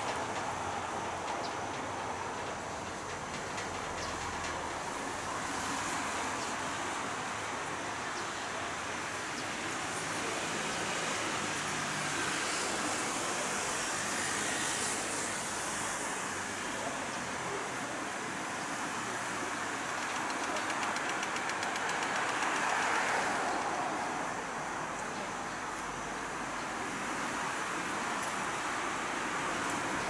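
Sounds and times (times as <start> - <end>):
monorail train running: 0.0 - 30.0
street traffic: 0.0 - 30.0.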